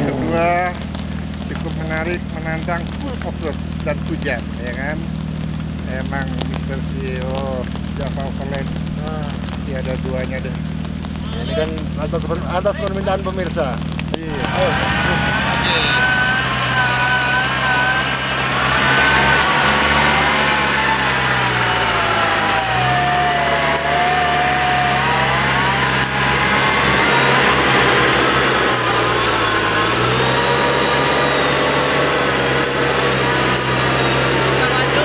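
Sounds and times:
car engine running: 0:00.0 - 0:35.0
electric winch whining: 0:14.3 - 0:35.0.

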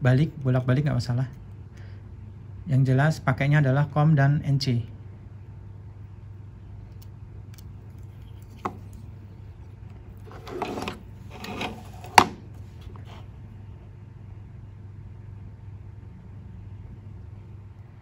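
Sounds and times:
steady low hum: 0:00.0 - 0:18.0
wires rustling: 0:07.6 - 0:13.3.

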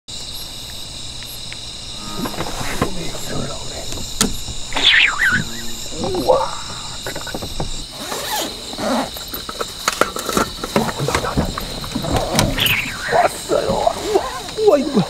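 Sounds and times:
insects trilling: 0:00.1 - 0:15.0
human voices: 0:04.8 - 0:07.6, 0:10.8 - 0:15.0.

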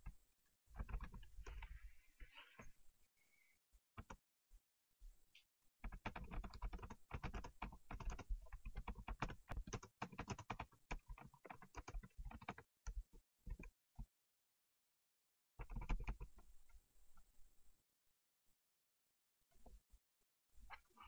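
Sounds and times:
typing on a keyboard: 0:00.8 - 0:01.6, 0:05.8 - 0:13.7, 0:15.6 - 0:16.3.

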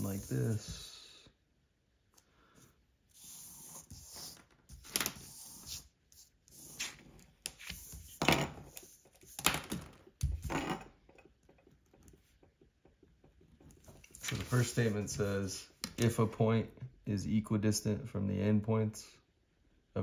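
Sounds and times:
pencil compass scratching paper: 0:03.1 - 0:09.5.

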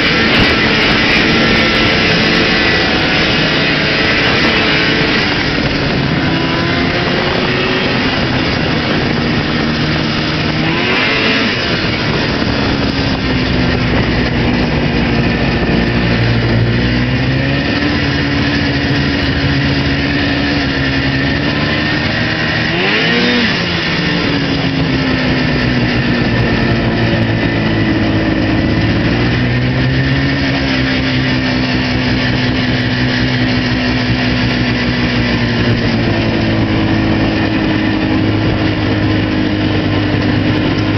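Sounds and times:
snowmobile engine running: 0:00.0 - 0:40.9.

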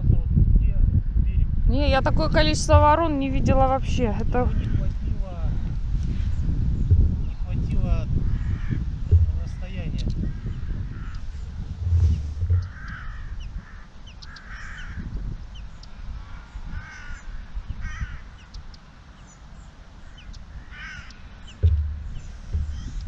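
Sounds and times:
wind rumble on microphone: 0:00.0 - 0:23.0
crows cawing: 0:08.2 - 0:15.1, 0:16.2 - 0:18.5, 0:20.1 - 0:23.0.

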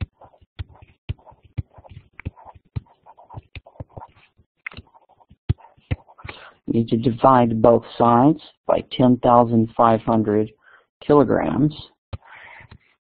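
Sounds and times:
stylus tapping on tablet: 0:00.0 - 0:06.4.

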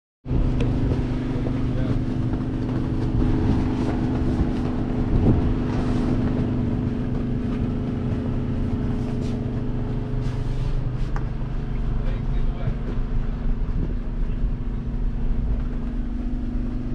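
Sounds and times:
tractor diesel engine running: 0:00.2 - 0:16.9.

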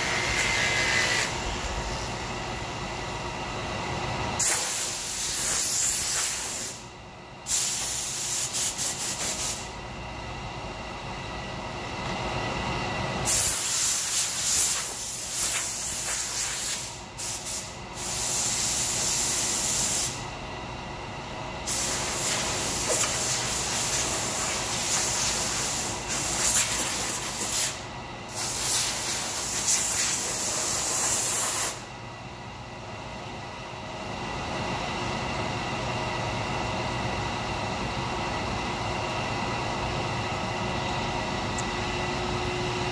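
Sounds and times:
air blow gun hissing: 0:04.4 - 0:06.8, 0:07.4 - 0:09.6, 0:13.2 - 0:20.2, 0:21.6 - 0:31.8
machine hum: 0:31.8 - 0:42.9.

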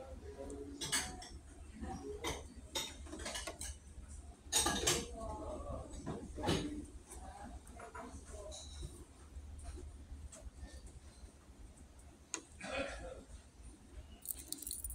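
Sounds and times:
sharp clinks and knocks: 0:14.2 - 0:14.9.

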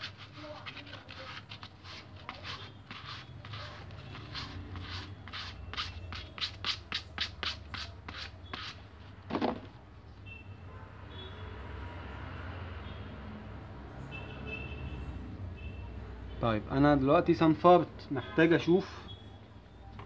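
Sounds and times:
sandpaper rubbing on rubber: 0:00.0 - 0:08.8.

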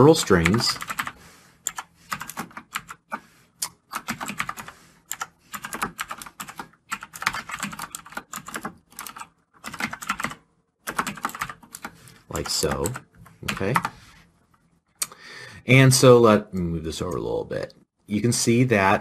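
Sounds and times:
typing on a keyboard: 0:00.4 - 0:13.9.

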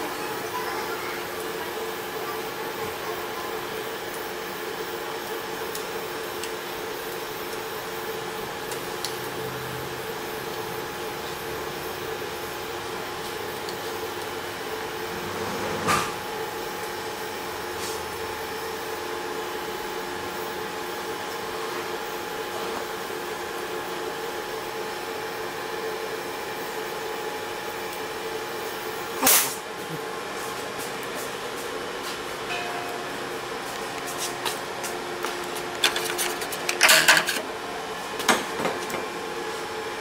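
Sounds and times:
steady machine hum: 0:00.0 - 0:40.0
hiss: 0:29.2 - 0:29.6.

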